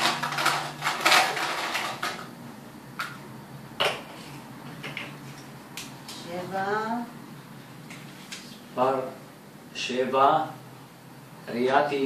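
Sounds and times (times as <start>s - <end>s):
plastic balls clattering in glass bowl: 0.0s - 2.3s.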